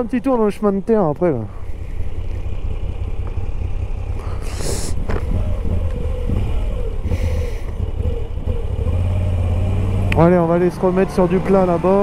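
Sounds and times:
motorcycle engine at low revs: 0.0s - 12.0s
brief hisses: 4.2s - 5.0s.

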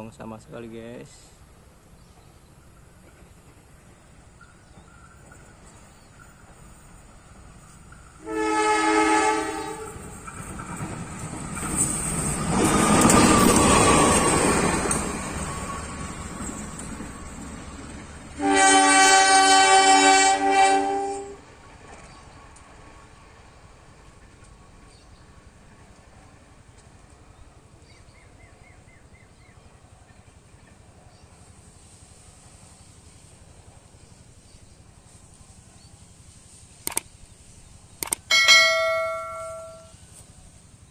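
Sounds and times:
locomotive engine and wheels: 0.0s - 19.2s, 21.4s - 40.9s
faint outdoor ambience: 0.0s - 40.9s
locomotive horn blast: 8.2s - 10.0s, 18.4s - 21.4s
quick double clicks: 36.8s - 37.1s, 38.0s - 38.3s
bell chime: 38.3s - 40.0s.

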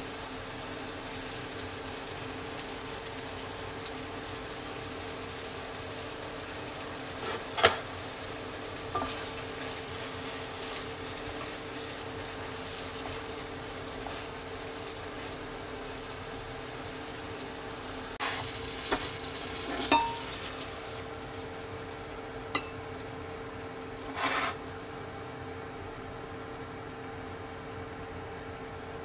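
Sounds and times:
sauce sizzling in a pan: 0.0s - 28.7s
utensil clinking against pan: 19.7s - 20.3s.

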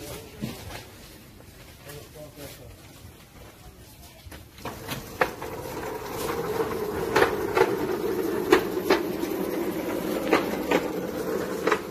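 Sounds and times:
trolley rolling over concrete: 4.0s - 11.9s.

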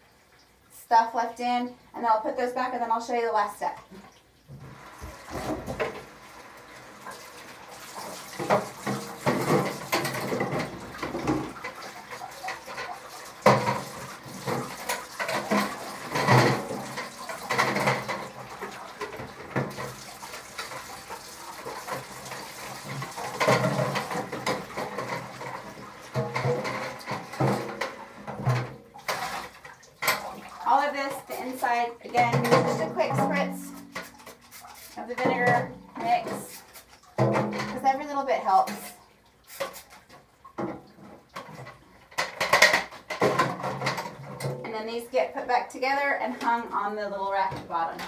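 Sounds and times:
tap water running into bucket: 2.7s - 48.0s
bucket knocking: 4.5s - 6.1s, 8.0s - 31.5s, 32.1s - 36.6s, 37.2s - 38.1s, 40.6s - 44.9s.

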